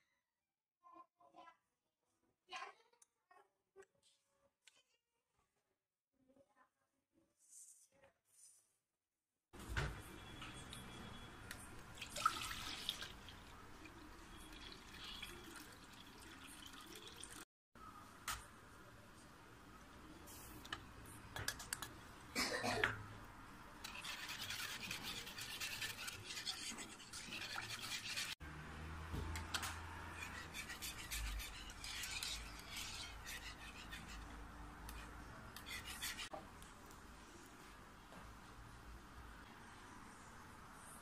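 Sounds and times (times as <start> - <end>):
whisk swishing in milk: 23.8 - 28.4, 29.9 - 36.3.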